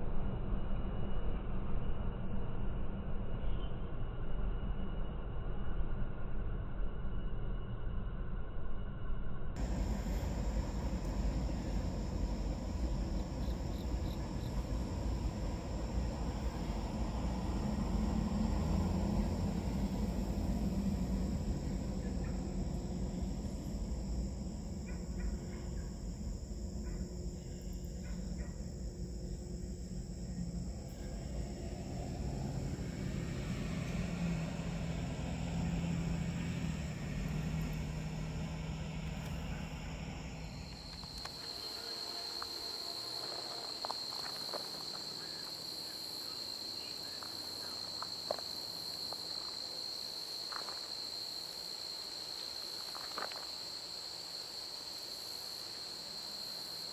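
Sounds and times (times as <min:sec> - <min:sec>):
freight train rumbling: 0:09.6 - 0:28.6, 0:29.3 - 0:49.8
insects chirring: 0:09.6 - 0:56.9.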